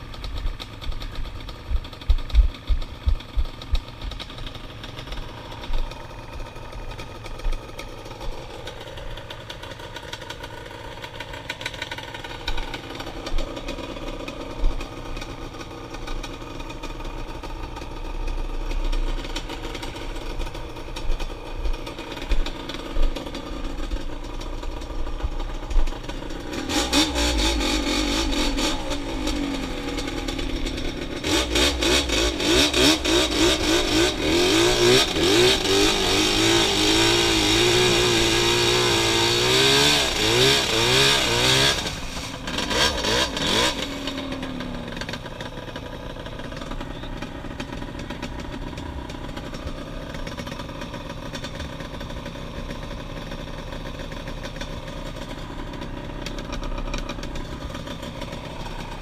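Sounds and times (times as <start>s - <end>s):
quad bike engine revving: 0.0s - 59.0s.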